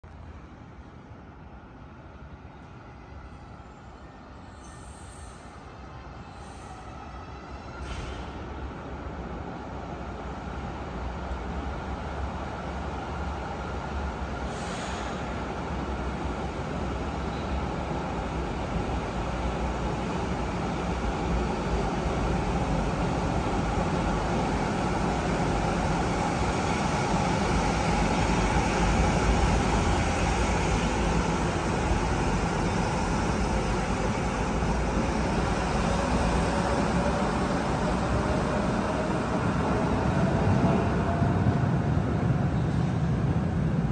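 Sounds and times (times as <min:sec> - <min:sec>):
light-rail car rumbling on rails: 0:00.2 - 0:43.9.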